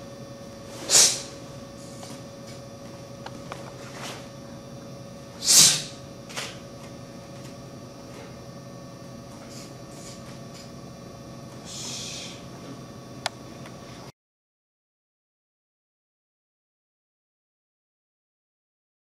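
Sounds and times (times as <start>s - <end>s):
faint steady hum: 0.0s - 14.1s.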